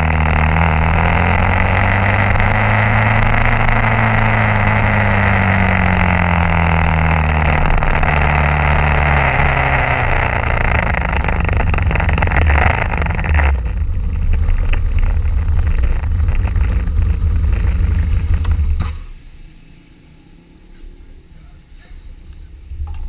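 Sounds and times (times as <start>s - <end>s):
motorcycle engine running: 0.0s - 19.2s
wind and road noise: 0.0s - 23.0s.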